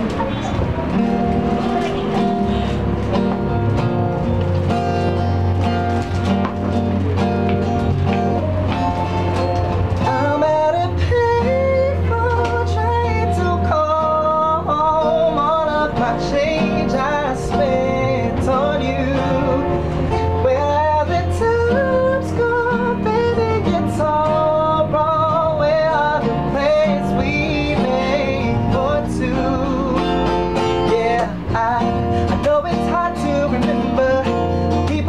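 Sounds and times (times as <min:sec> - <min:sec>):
guitar accompaniment: 0:00.0 - 0:35.0
man singing pop love song: 0:10.0 - 0:35.0.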